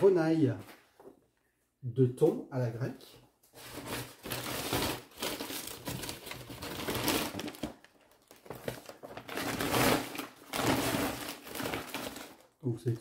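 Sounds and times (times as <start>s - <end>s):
paper bag rustling: 3.6s - 12.4s.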